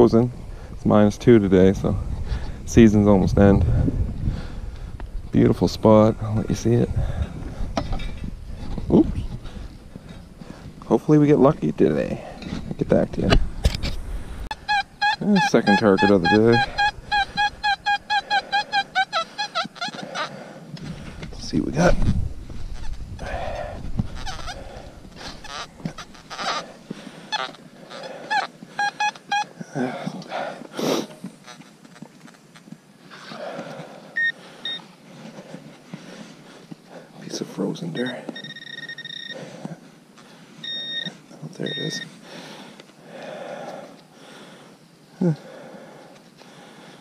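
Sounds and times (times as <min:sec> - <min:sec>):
metal detector short beeps: 0:14.5 - 0:19.7, 0:34.2 - 0:34.8, 0:38.0 - 0:39.4, 0:40.6 - 0:42.1
metal detector warbling tones: 0:14.5 - 0:20.2, 0:28.3 - 0:29.5, 0:38.0 - 0:39.4, 0:40.6 - 0:42.1.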